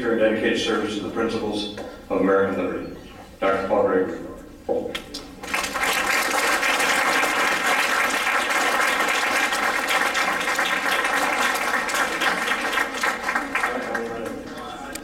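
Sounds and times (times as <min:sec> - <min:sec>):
audience applauding: 0:05.4 - 0:15.0.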